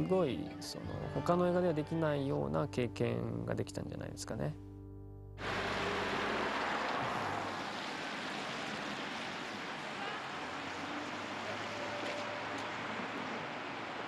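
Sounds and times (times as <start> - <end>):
tyres hissing on wet road: 5.4 - 14.0.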